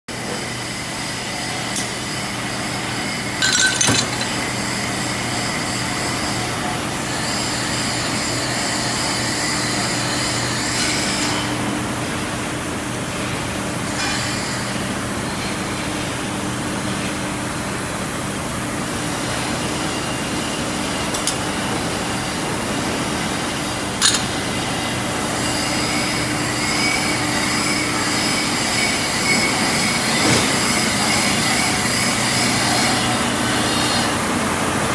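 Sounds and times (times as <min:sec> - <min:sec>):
glass clinks: 0:03.4 - 0:04.4, 0:24.0 - 0:24.3
machinery hum: 0:11.6 - 0:34.9.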